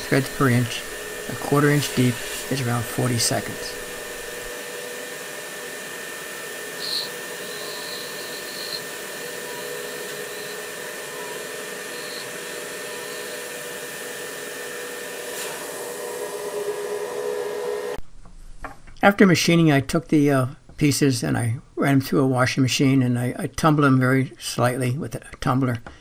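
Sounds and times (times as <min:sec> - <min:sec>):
milling machine spindle whirring: 0:00.0 - 0:18.0.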